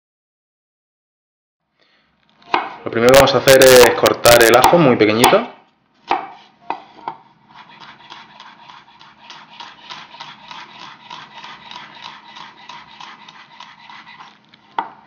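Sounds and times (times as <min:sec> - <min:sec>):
knife chopping on wooden board: 0:02.5 - 0:02.8, 0:03.8 - 0:15.0.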